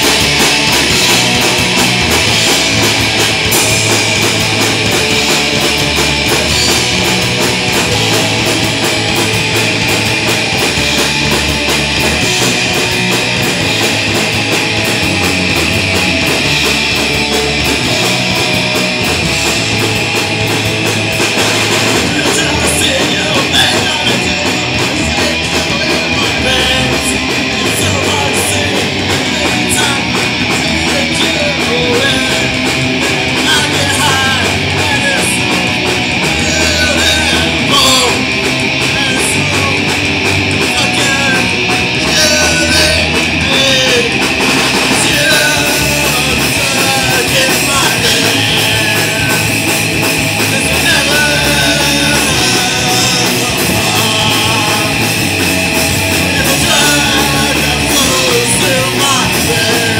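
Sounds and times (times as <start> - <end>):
drum kit: 0.0 - 59.9
electric guitar: 0.0 - 59.9.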